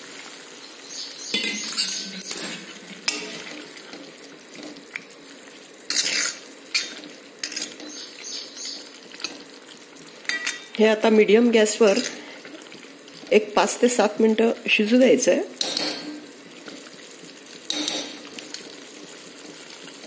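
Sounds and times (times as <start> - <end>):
ladle scraping metal pan: 5.9 - 8.0.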